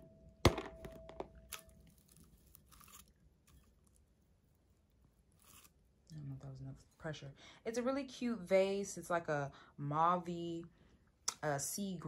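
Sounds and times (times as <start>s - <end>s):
soft crinkles and scrapes: 1.5s - 7.2s.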